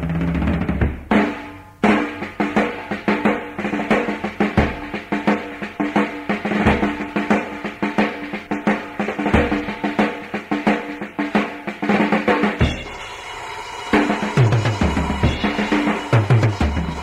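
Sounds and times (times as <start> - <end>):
rock band instrumental: 0.0 - 17.0
snare drum rolls: 0.0 - 17.0.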